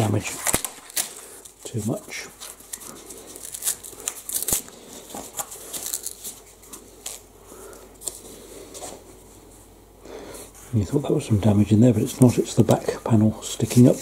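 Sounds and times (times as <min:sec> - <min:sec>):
cardboard ripping: 0:00.0 - 0:07.2.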